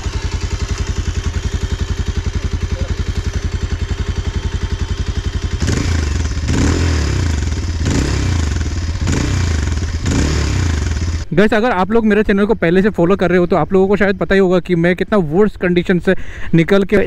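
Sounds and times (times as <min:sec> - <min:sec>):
motorcycle engine idling: 0:00.0 - 0:11.3
motorcycle engine revving: 0:00.0 - 0:11.3.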